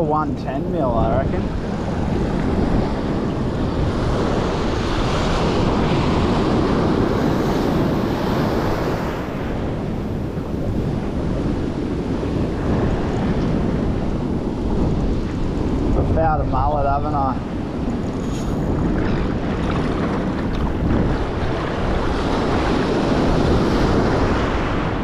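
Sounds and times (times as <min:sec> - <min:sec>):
surf washing over sand: 0:00.0 - 0:25.0
wind buffeting microphone: 0:00.0 - 0:25.0.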